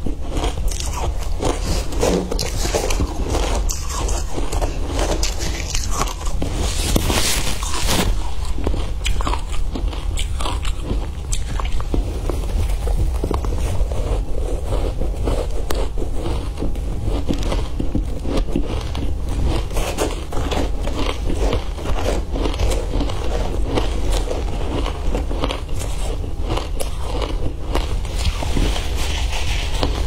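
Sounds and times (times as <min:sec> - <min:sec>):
ice crunching between teeth: 0:00.0 - 0:30.0
low hum: 0:00.0 - 0:30.0
metal spoon scraping ice: 0:00.3 - 0:10.4.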